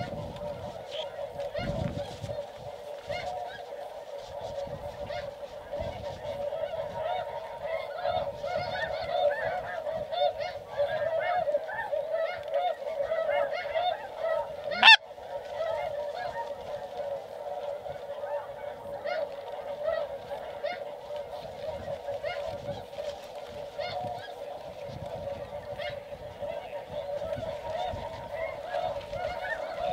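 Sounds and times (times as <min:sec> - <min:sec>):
geese honking: 0:14.2 - 0:15.0.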